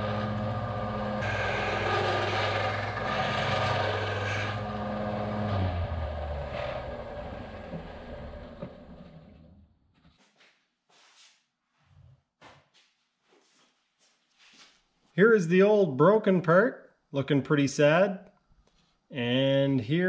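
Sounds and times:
metal grinding scrape: 0.0s - 9.5s
sander motor running: 0.0s - 9.5s.

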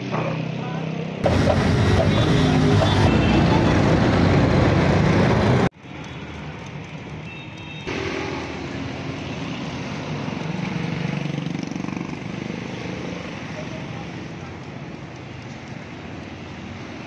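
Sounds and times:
vehicles and motorbikes passing: 0.0s - 17.0s
loud sound cutting off: 1.2s - 5.7s.

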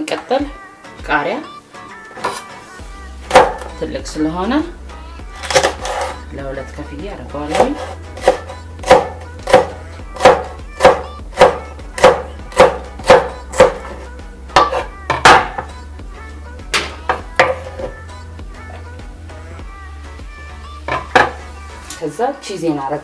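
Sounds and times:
knife chopping on wooden board: 3.3s - 3.7s, 7.5s - 14.0s, 14.6s - 15.7s, 20.9s - 21.4s.

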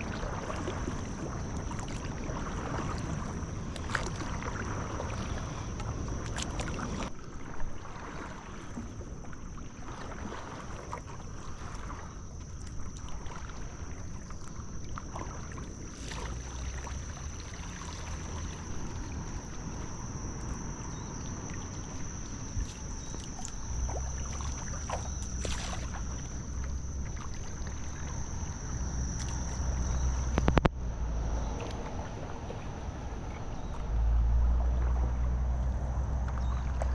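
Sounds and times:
paddle splashing in water: 0.0s - 30.8s, 31.4s - 36.9s
high-pitched whine: 16.2s - 36.8s
low rumble: 16.2s - 36.9s.

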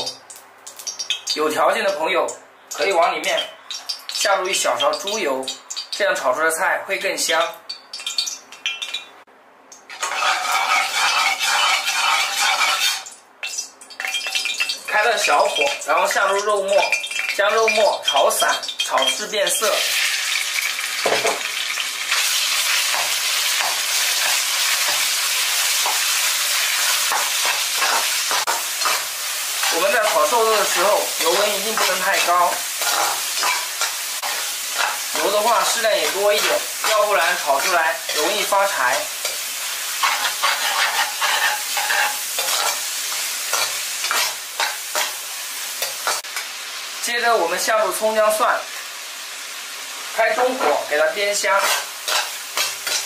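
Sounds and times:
meat sizzling in hot oil: 0.0s - 9.1s, 9.8s - 53.0s
metal ladle scraping a wok: 9.9s - 13.1s, 40.0s - 45.2s, 51.6s - 53.0s
metal ladle scraping wok: 9.9s - 13.2s, 26.8s - 37.4s, 39.2s - 45.2s, 51.5s - 53.0s.

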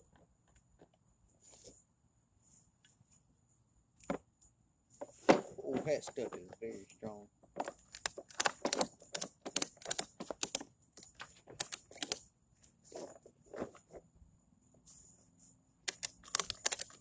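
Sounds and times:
ratchet strap clicking: 7.9s - 12.2s, 15.9s - 17.0s.

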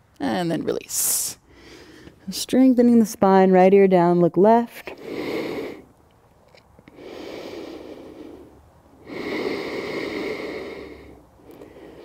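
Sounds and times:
woman breathing heavily: 1.4s - 2.2s, 4.9s - 6.0s, 6.8s - 12.0s.

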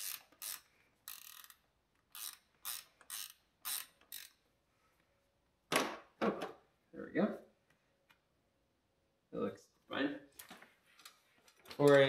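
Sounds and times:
ratcheting clicks: 0.0s - 4.4s.

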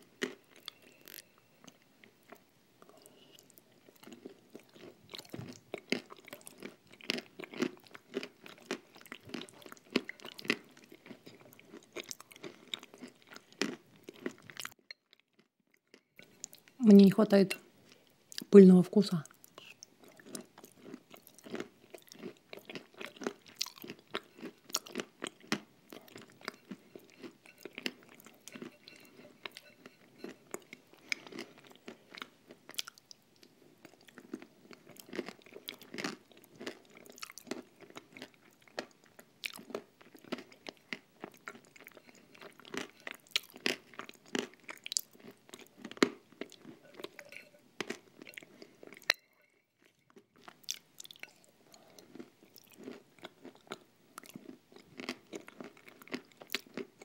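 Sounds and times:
wet mouth clicks and chewing: 0.2s - 1.3s, 19.3s - 57.0s.

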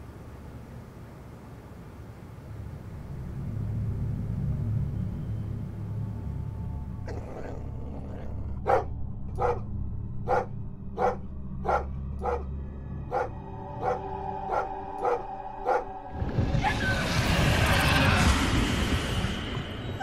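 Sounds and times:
low steady rumble: 0.0s - 17.6s
dog barking: 8.2s - 9.6s, 10.3s - 12.5s, 13.1s - 15.9s.

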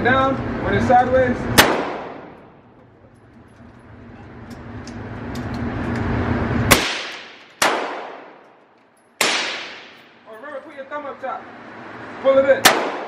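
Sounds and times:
handgun shots: 6.7s - 8.4s, 9.2s - 10.1s, 12.6s - 13.0s.

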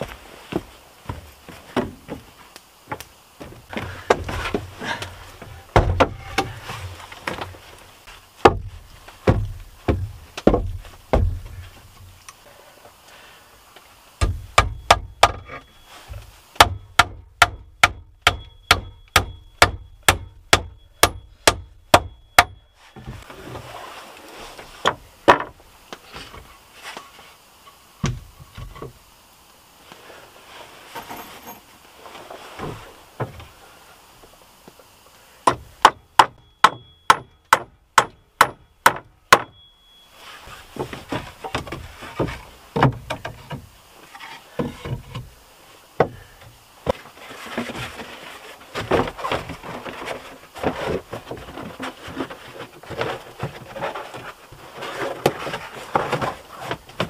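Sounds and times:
heavy wooden knocks and thuds: 0.0s - 7.6s, 8.4s - 12.2s, 14.2s - 23.2s, 24.8s - 25.6s, 28.0s - 29.0s, 35.4s - 39.6s, 40.7s - 43.7s, 46.0s - 48.0s.

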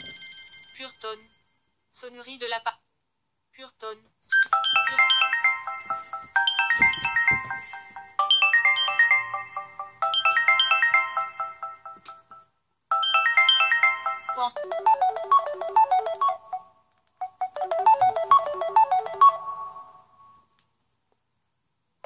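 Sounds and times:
phone ringtone: 4.2s - 20.4s.

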